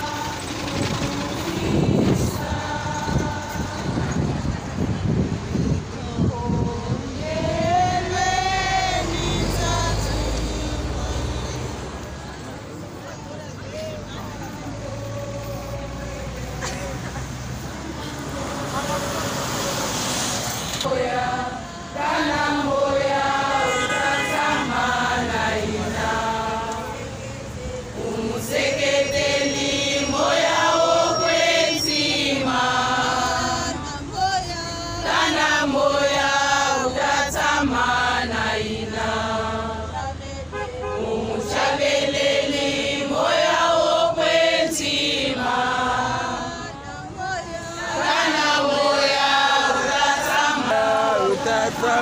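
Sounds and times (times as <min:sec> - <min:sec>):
crowd singing in unison: 0:00.0 - 0:52.0.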